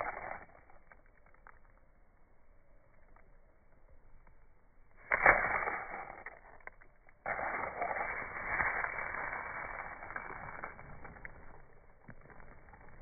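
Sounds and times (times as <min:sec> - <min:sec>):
fingers rustling moss: 0:05.1 - 0:13.0.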